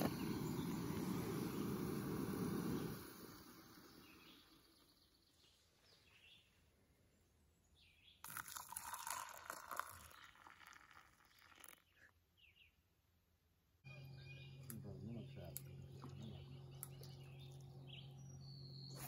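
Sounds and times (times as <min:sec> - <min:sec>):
faint bird chirps: 0:00.0 - 0:08.2, 0:13.8 - 0:19.0
water pouring into cup: 0:08.2 - 0:12.0.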